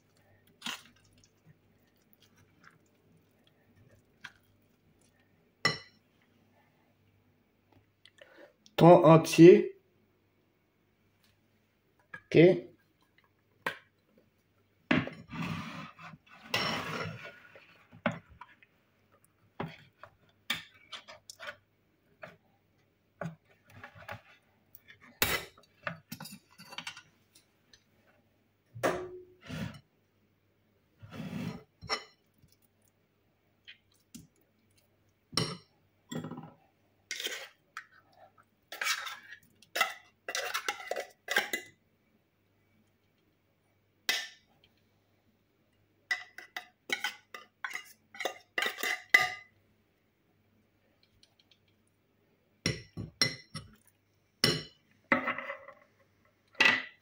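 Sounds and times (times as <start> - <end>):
cutlery clinking on glass bowl: 46.1 - 49.5, 52.7 - 55.3.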